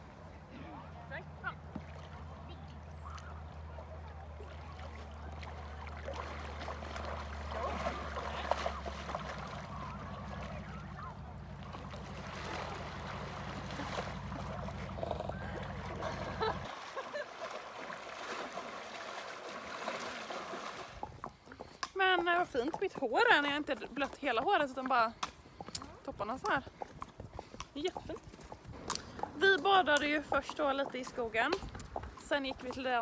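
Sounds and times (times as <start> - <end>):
water splashing and sloshing: 1.2 - 26.6.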